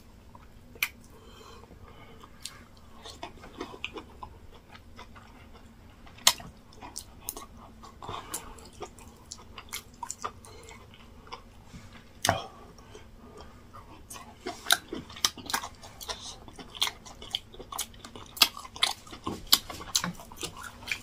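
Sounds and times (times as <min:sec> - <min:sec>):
lip smacks: 0:00.8 - 0:01.1
wet chewing: 0:02.2 - 0:11.6, 0:12.2 - 0:21.0.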